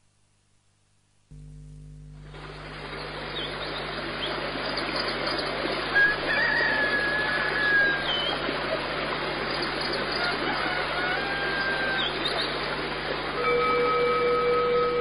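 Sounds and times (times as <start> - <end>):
low steady hum: 0.0 - 15.0
birds chirping: 2.4 - 13.3
long whistled bird call: 5.9 - 8.4, 9.6 - 12.6.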